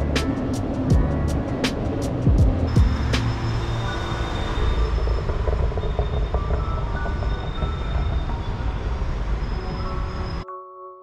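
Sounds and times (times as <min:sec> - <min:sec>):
low rumble of city traffic: 0:00.0 - 0:10.4
ringing chime-like tone: 0:02.7 - 0:11.0.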